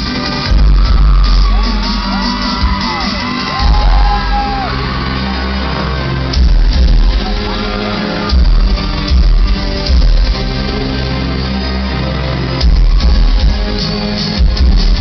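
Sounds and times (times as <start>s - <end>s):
dance-pop music through pa: 0.0s - 15.0s
fans screaming: 0.1s - 9.1s.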